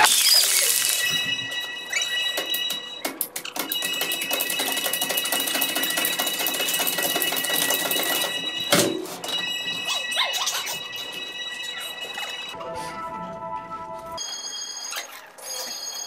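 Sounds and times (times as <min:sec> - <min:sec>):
clattering rattle of clicks: 0:01.5 - 0:09.6.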